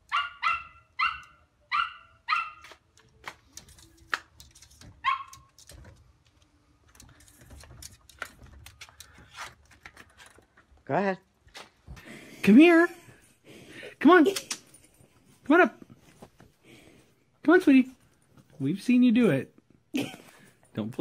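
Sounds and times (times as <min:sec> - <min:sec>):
small dog yapping: 0:00.1 - 0:02.8, 0:05.0 - 0:05.5.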